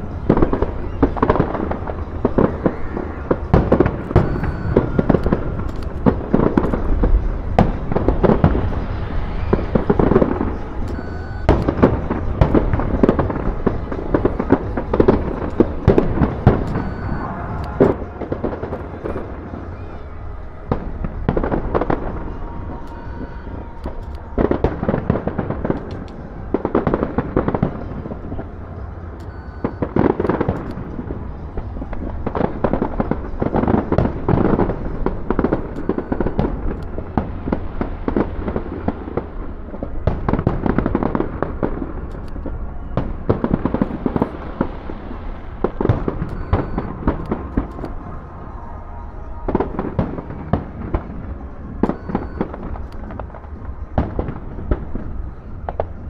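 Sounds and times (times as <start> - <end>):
fireworks bangs: 0.0 - 56.0
fireworks crackling and popping: 0.0 - 56.0.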